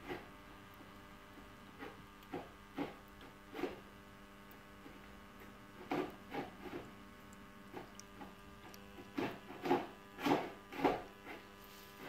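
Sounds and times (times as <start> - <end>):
dishwasher humming: 4.8 - 12.0.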